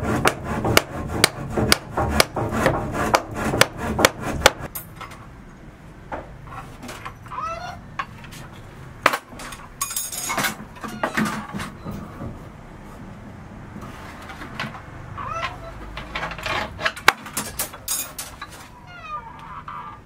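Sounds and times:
tools knocking and clinking: 15.4 - 18.6.

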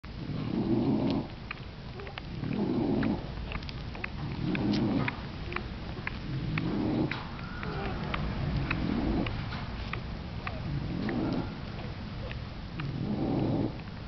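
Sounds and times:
puppies squeaking: 1.9 - 12.4
dog breathing noisily: 2.0 - 13.8.

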